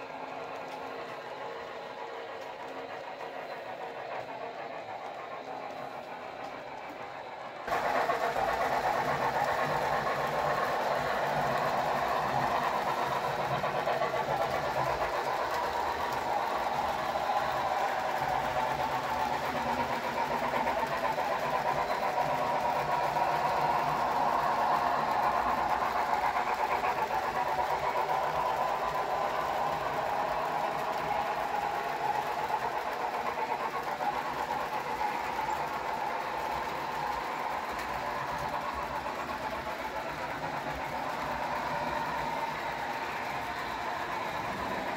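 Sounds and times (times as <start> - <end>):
model train rolling and rumbling: 0.0 - 44.9.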